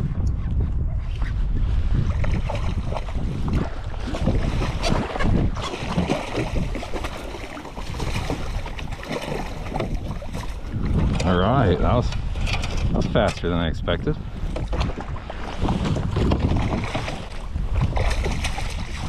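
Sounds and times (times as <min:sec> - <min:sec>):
wind on microphone: 0:00.0 - 0:19.0
water splashing against kayak: 0:02.0 - 0:13.0, 0:14.2 - 0:19.0
fish thrashing at surface: 0:02.4 - 0:11.1.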